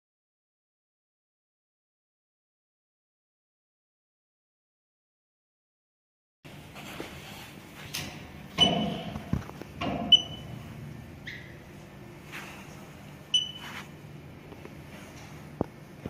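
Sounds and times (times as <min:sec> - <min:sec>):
short electronic beeps: 0:10.1 - 0:10.6, 0:13.3 - 0:13.8.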